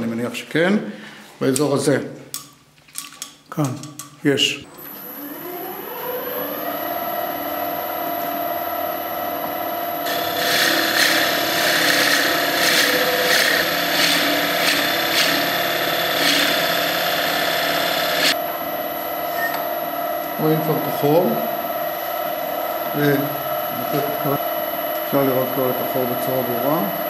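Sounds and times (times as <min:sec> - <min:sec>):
wood lathe motor hum: 0:04.8 - 0:18.8, 0:19.8 - 0:27.0
drill bit boring into wood: 0:10.0 - 0:18.4.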